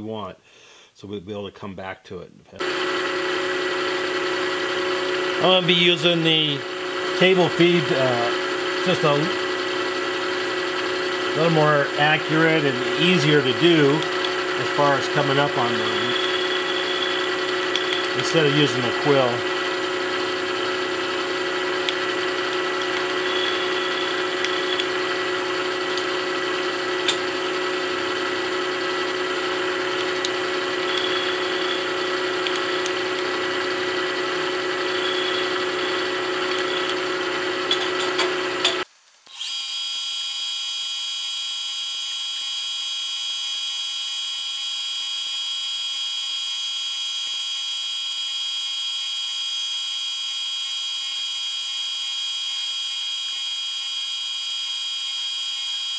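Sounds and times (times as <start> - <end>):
milling machine hum: 2.6 - 38.8
high-pitched whine: 11.2 - 28.8, 29.5 - 33.5, 34.2 - 37.0
cutting squeals: 11.4 - 19.4, 23.0 - 24.9, 30.8 - 32.9, 34.8 - 37.0.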